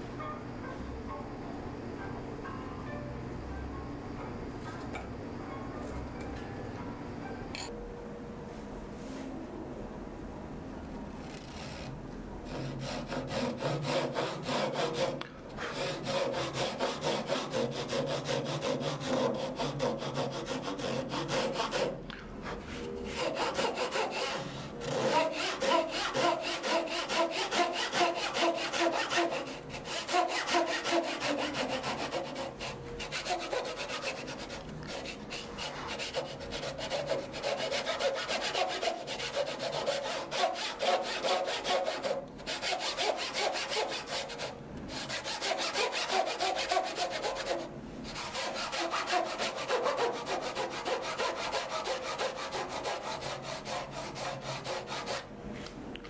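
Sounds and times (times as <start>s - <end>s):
hand saw cutting wood: 12.5s - 55.2s.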